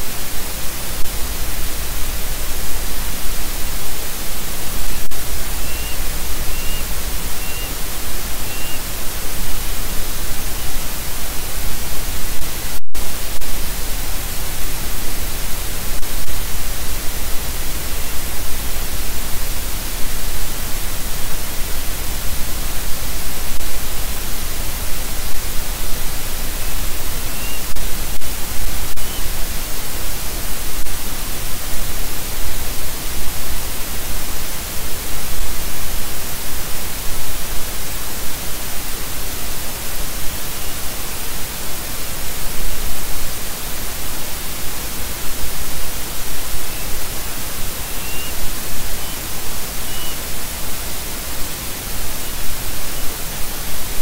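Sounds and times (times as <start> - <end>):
static hiss: 0.0 - 54.0
faint high chirps: 4.8 - 7.8, 8.4 - 8.9, 27.2 - 27.8, 28.9 - 29.3, 47.9 - 50.3.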